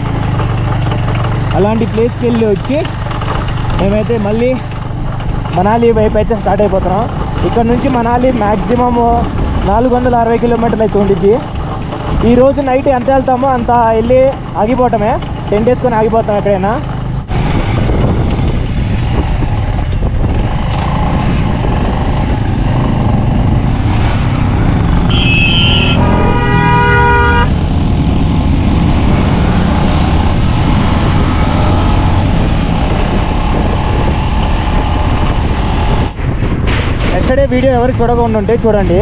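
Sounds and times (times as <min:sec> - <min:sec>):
motorcycle engine riding: 0:00.0 - 0:39.0
wind on microphone: 0:17.2 - 0:39.0
vehicle horn honking: 0:25.1 - 0:27.6.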